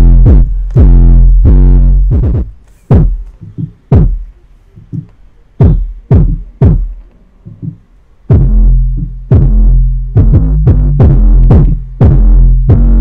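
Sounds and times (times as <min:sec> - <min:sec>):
deep bass hits from subwoofer: 0:00.0 - 0:04.3, 0:04.9 - 0:13.0.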